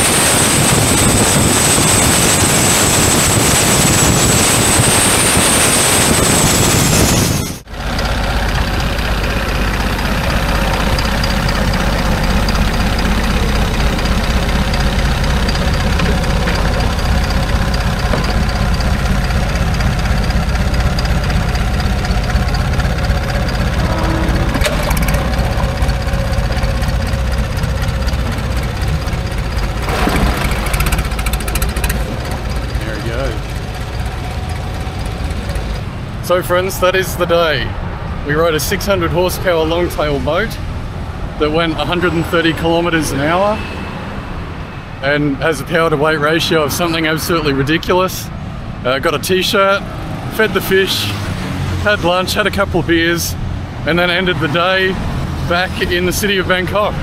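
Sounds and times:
boat engine running: 0.0s - 36.3s
high thin engine whine: 0.0s - 37.6s
boat engine idling: 7.6s - 36.7s.

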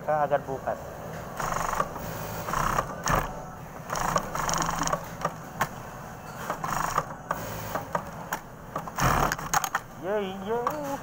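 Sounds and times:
industrial sewing machine stitching: 1.4s - 3.3s, 3.9s - 5.0s, 6.6s - 7.1s, 8.9s - 9.6s.

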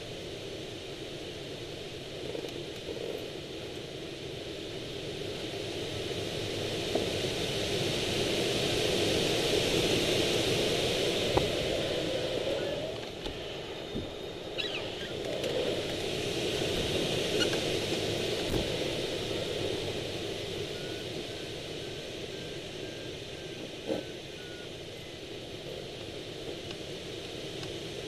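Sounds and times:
air rushing past glider: 2.9s - 28.0s.

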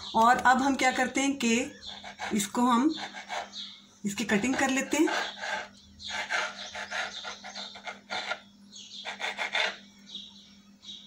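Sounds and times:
faint steady hum: 0.0s - 11.0s
knife scraping dough on countertop: 9.1s - 9.8s.

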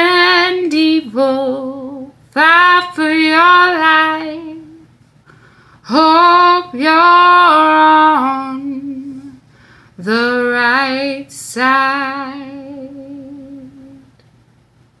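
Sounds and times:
woman singing unaccompanied: 0.0s - 4.9s, 5.8s - 9.4s, 10.0s - 14.2s
singer breathing: 5.2s - 5.9s, 9.4s - 10.0s.

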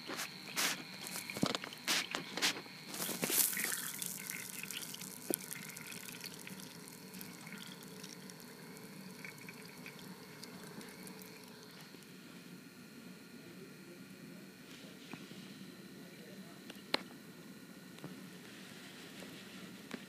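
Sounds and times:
water churning in a tank: 2.9s - 11.9s.

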